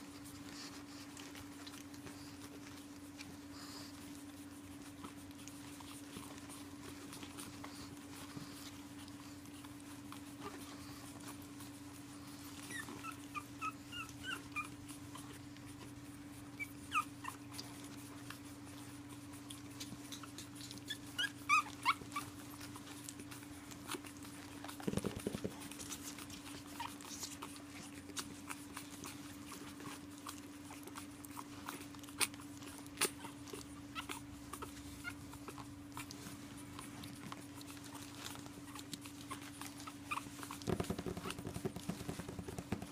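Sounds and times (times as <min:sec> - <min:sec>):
puppies whimpering: 0:00.1 - 0:42.9.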